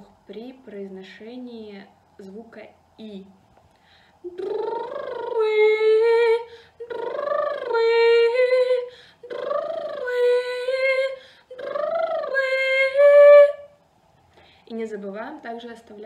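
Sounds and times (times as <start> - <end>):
woman singing vocal warm-up: 4.2 - 13.8.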